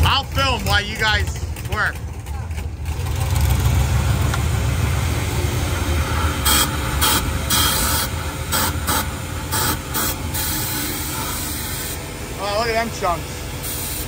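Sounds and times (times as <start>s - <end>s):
low rumble: 0.0s - 13.6s
hissing spray blasts: 3.8s - 14.0s.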